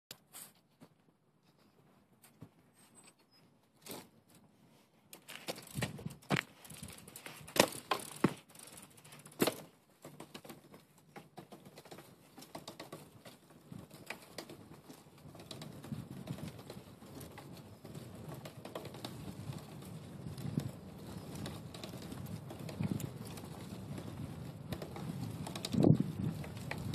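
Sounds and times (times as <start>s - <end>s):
bike rattling on asphalt: 5.1s - 26.9s
bike knocks and clicks: 5.2s - 26.9s.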